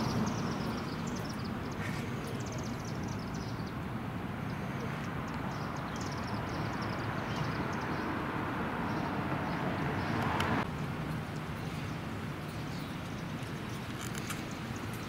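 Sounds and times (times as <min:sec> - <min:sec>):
birds chirping: 0:00.0 - 0:15.0
vehicle passing: 0:04.0 - 0:12.2.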